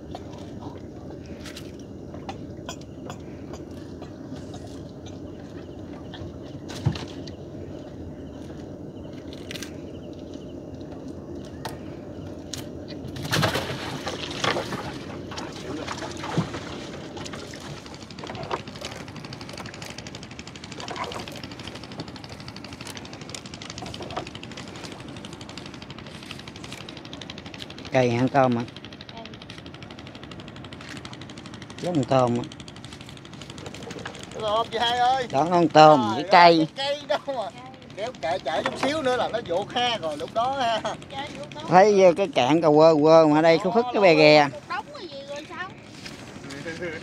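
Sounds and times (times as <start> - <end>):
small engine puttering: 11.6 - 47.0.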